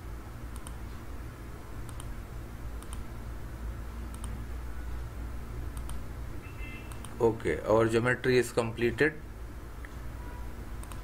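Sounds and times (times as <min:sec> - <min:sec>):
low steady hum: 0:00.0 - 0:11.0
computer mouse clicking: 0:00.5 - 0:00.8, 0:01.8 - 0:02.1, 0:02.8 - 0:03.1, 0:04.1 - 0:04.4, 0:05.7 - 0:06.0, 0:06.9 - 0:07.2, 0:10.8 - 0:11.0.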